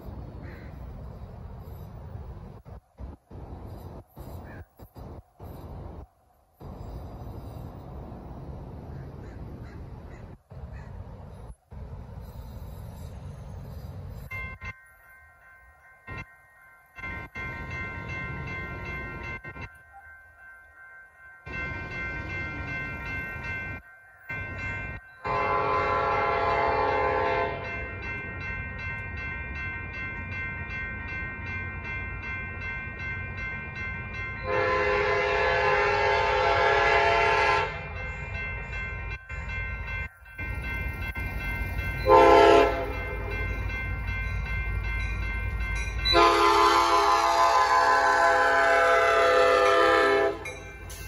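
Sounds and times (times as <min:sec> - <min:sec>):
railroad crossing bells ringing: 0:00.0 - 0:51.0
train rumble: 0:00.0 - 0:51.0
train horn blasts: 0:25.2 - 0:27.9, 0:34.4 - 0:38.0, 0:42.0 - 0:43.1, 0:46.1 - 0:50.6.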